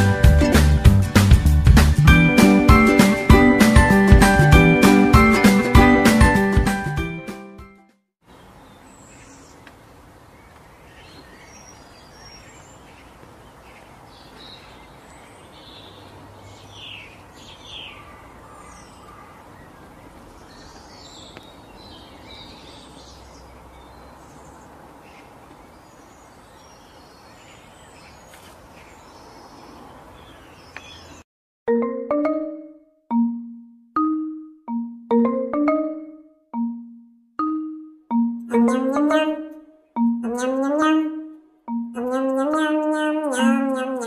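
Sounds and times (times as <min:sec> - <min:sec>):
birds chirping: 0:08.2 - 0:31.2, 0:38.1 - 0:44.0.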